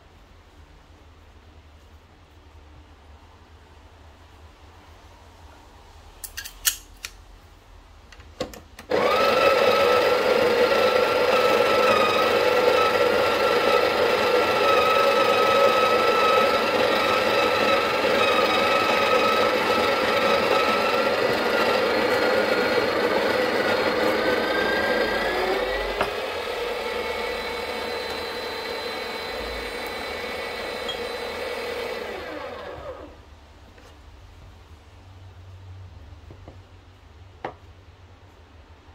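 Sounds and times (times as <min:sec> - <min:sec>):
espresso machine pump humming: 0:08.9 - 0:33.0.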